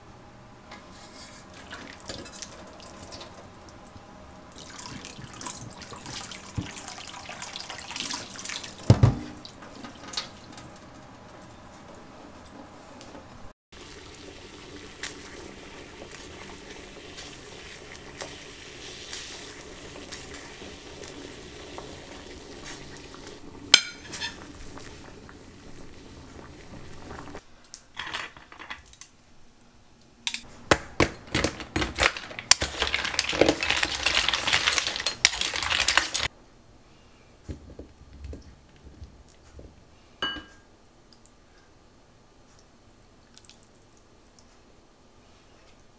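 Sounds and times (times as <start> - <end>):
dishes and utensils clinking: 23.8 - 24.6, 31.1 - 36.3, 40.2 - 40.7.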